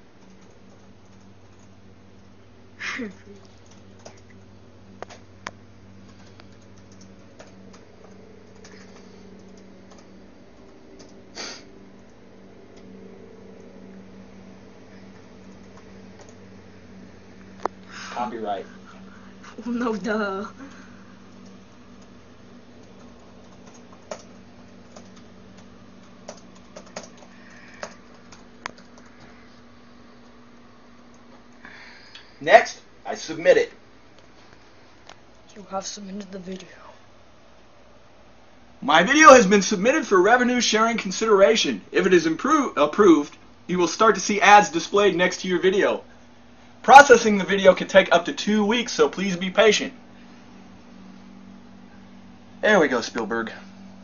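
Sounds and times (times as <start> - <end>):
steady low hum: 0.0 - 54.0
loud noisy keystroke: 22.8 - 29.2.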